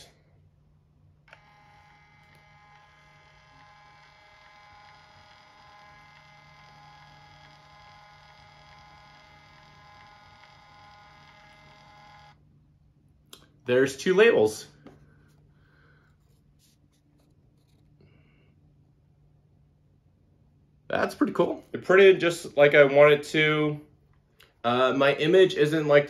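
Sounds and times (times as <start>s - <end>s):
label printer whine: 1.3s - 12.4s.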